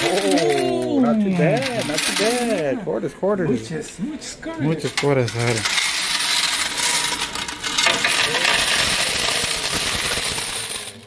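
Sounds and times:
coins pouring into plastic tray: 0:00.0 - 0:00.7, 0:01.4 - 0:02.6, 0:05.3 - 0:11.0.

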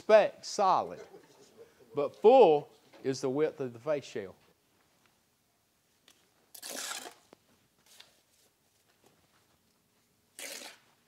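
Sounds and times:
trowel scraping mortar on block: 0:06.5 - 0:07.3, 0:10.4 - 0:10.9.

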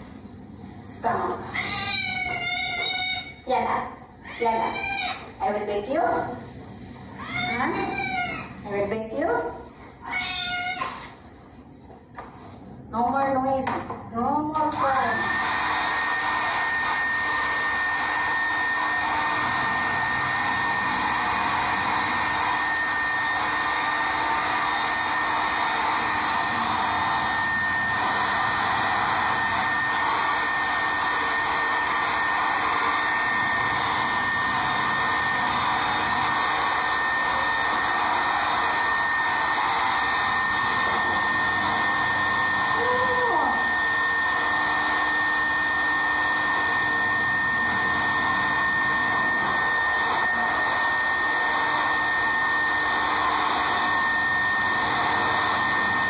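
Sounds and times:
hair dryer running: 0:04.4 - 0:09.2, 0:14.6 - 0:56.0.

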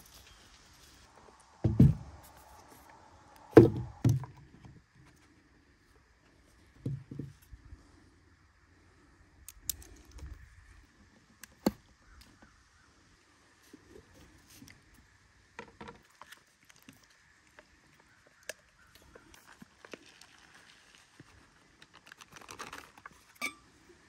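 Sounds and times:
camping gear knocking on wooden table: 0:01.6 - 0:02.1, 0:03.6 - 0:04.3.

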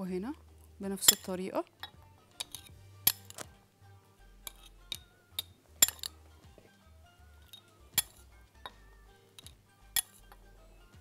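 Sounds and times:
soft background music: 0:00.0 - 0:11.0
metal spoon clinking on glass: 0:01.0 - 0:03.4, 0:04.4 - 0:06.2, 0:07.4 - 0:08.8, 0:09.4 - 0:10.4.

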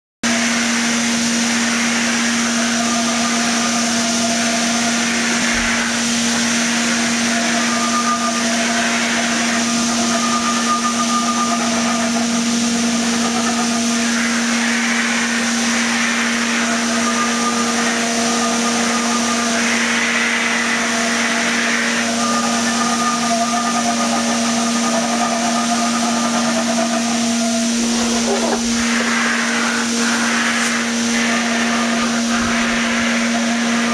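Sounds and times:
motor drone: 0:00.3 - 0:33.9
paint spray gun hissing: 0:25.9 - 0:33.2.

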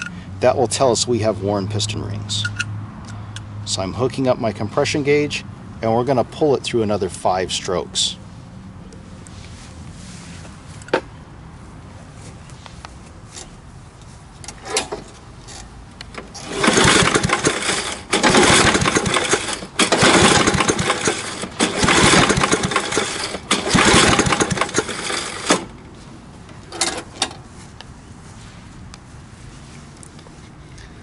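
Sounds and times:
engine cranking without firing: 0:14.5 - 0:25.8
recoil starter pulls: 0:14.5 - 0:25.8.

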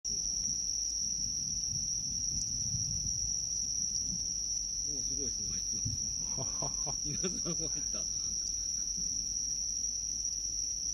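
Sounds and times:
crickets trilling: 0:00.0 - 0:10.9
low rumble: 0:05.3 - 0:09.3.

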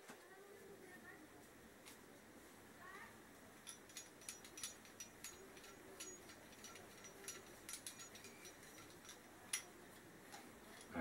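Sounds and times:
small steel parts clinking: 0:03.6 - 0:09.8.

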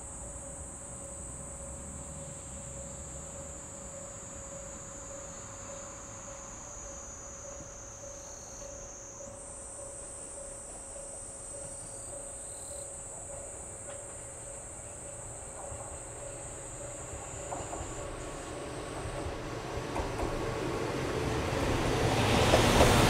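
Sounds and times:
insects chorus: 0:00.0 - 0:23.0
diesel train rumble: 0:13.8 - 0:23.0.

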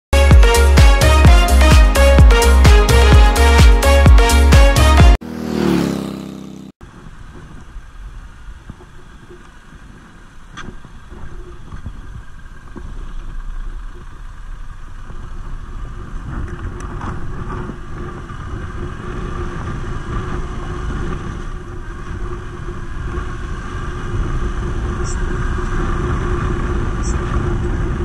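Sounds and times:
road and wind rumble: 0:00.1 - 0:28.0.

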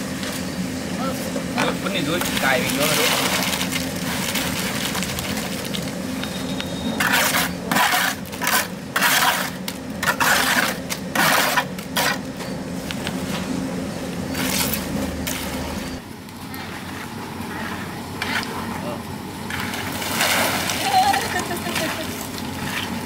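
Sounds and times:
scraping strokes on hard surface: 0:16.5 - 0:18.8.

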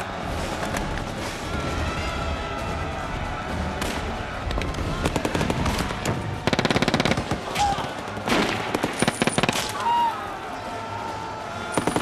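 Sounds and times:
machine-gun fire: 0:05.0 - 0:07.4, 0:08.3 - 0:09.7.

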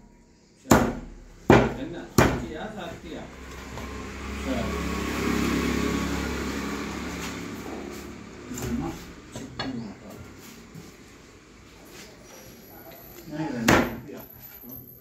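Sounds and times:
vehicle engine running: 0:02.5 - 0:11.7.

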